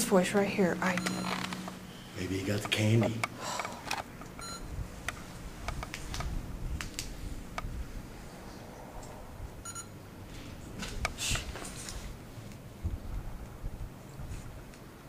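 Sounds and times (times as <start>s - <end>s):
electronic device beeping: 0.6s - 2.2s, 4.4s - 4.7s, 9.6s - 10.0s.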